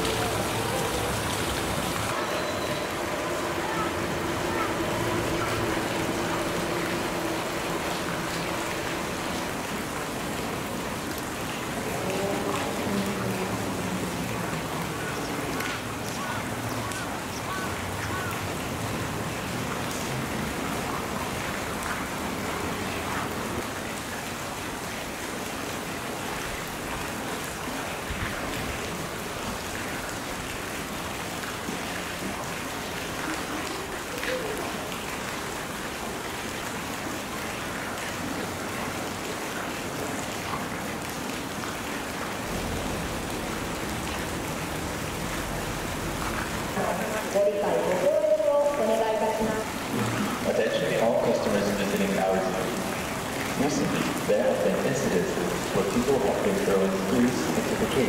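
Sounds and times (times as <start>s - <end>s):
faint voices murmuring: 0.0s - 8.6s
rushing outdoor noise: 0.0s - 58.0s.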